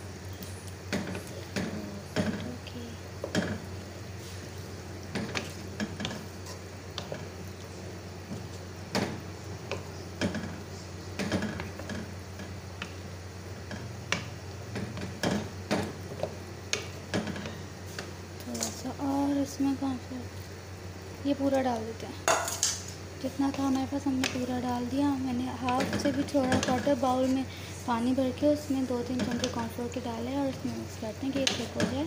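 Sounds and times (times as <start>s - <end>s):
low steady hum: 0.0s - 32.0s
wooden spoon scraping in a wok: 3.2s - 7.4s, 25.6s - 28.0s.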